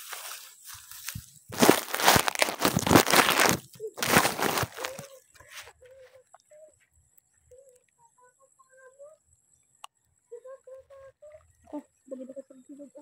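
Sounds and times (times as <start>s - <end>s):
crunching and rustling of pods: 0.0s - 6.5s.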